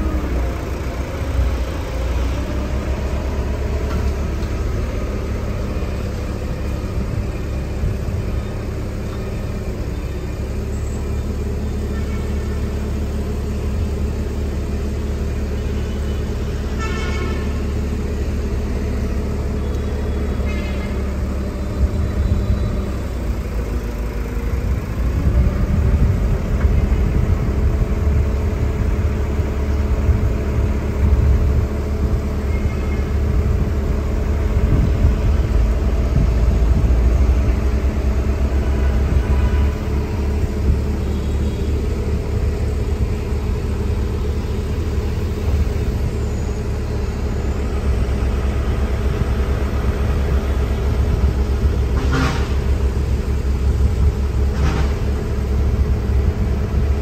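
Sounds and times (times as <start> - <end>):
excavator engine running: 0.0 - 57.0.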